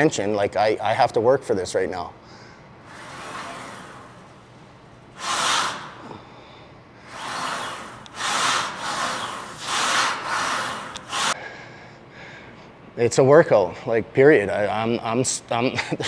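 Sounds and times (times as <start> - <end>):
man breathing hard: 2.2 - 2.7, 11.3 - 12.7.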